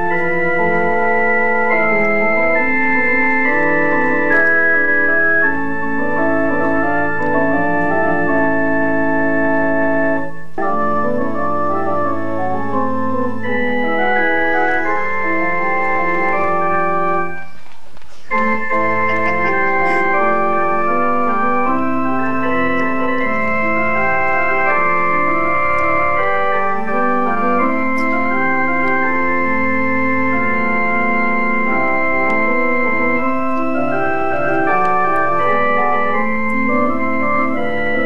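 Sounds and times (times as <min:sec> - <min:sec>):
organ playing slow chords: 0:00.0 - 0:38.0.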